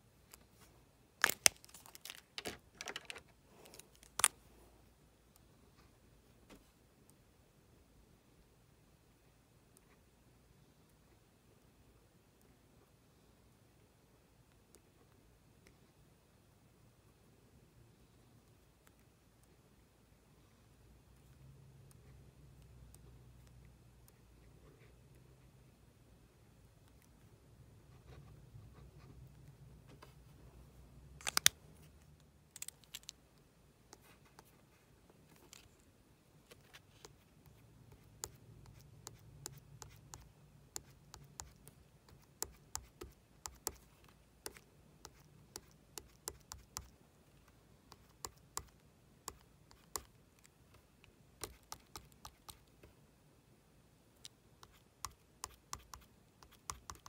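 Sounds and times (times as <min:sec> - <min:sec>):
low steady hum: 0:00.0 - 0:57.0.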